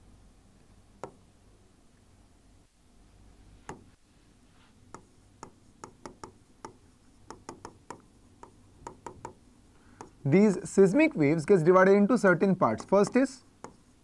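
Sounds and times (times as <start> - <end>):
pen tapping on touchscreen: 1.0 - 1.2, 3.7 - 3.9, 4.9 - 9.4, 10.0 - 10.2, 12.8 - 13.8.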